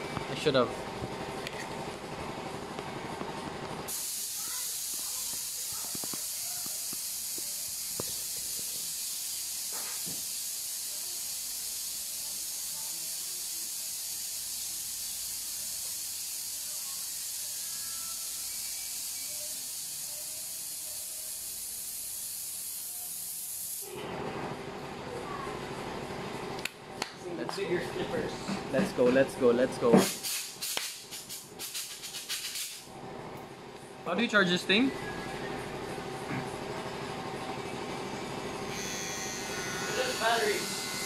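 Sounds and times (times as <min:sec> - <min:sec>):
high-pitched hiss: 0:03.9 - 0:23.8.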